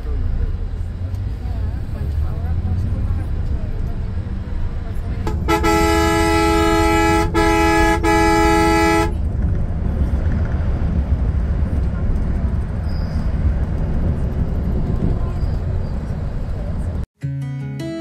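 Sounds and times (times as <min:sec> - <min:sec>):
bus engine rumble: 0:00.0 - 0:17.1
road noise: 0:00.0 - 0:17.1
bus horn blasts: 0:05.2 - 0:09.3.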